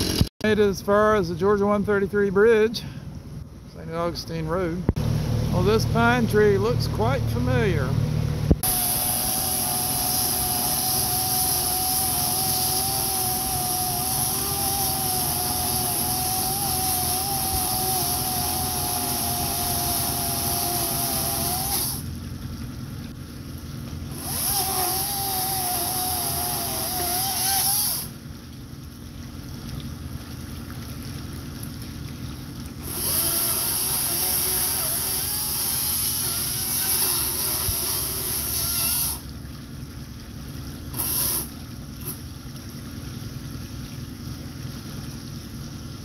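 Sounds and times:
chainsaw cutting wood: 0.0 - 0.3, 8.5 - 22.1, 24.1 - 28.2, 32.8 - 39.3, 40.9 - 42.2.

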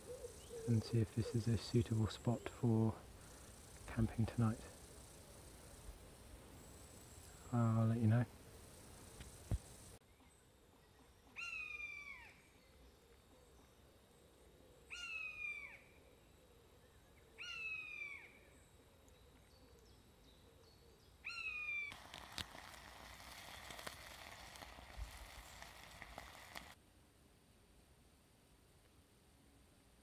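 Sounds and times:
gas camping stove hissing: 21.9 - 26.8.

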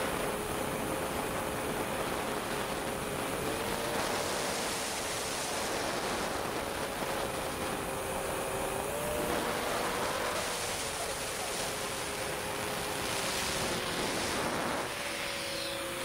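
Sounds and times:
wind rushing over camera: 0.0 - 16.0
drone motors whining: 7.1 - 16.0.

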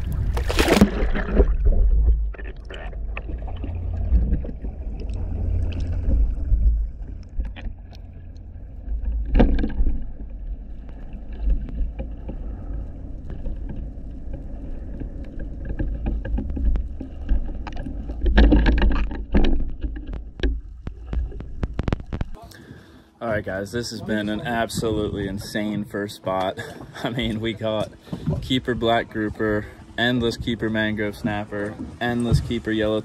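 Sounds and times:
underwater water rushing: 0.0 - 22.4
knocks and clicks: 15.6 - 22.4.

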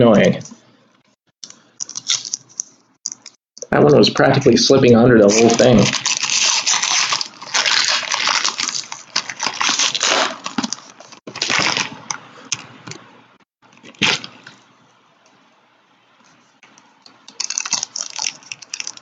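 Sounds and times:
card pack wrappers crinkling: 1.4 - 3.4, 5.3 - 12.6, 17.3 - 19.0.

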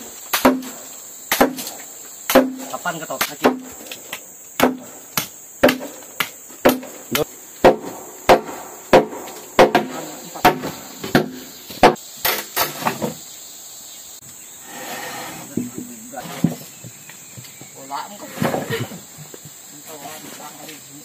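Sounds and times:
insects chirring: 0.0 - 21.0
tool striking wood: 0.3 - 1.7, 2.3 - 3.9, 4.6 - 13.1.

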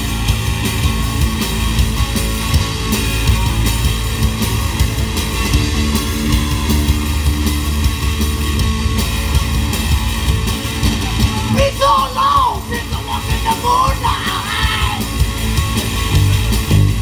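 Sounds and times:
rock band playing: 0.0 - 17.0.

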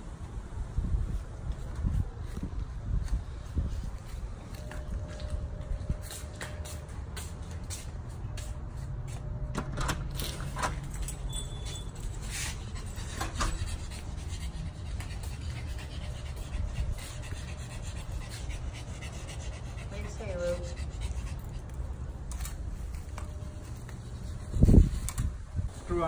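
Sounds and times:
dog panting: 12.0 - 22.1.

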